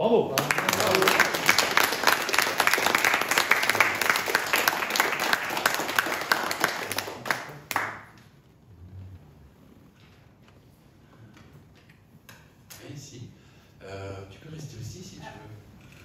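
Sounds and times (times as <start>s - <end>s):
audience applauding: 0.4s - 8.2s.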